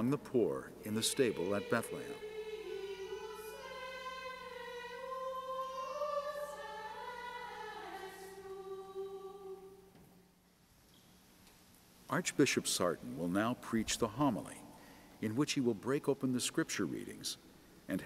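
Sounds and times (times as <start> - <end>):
choir singing slow melody: 0.0 - 10.0.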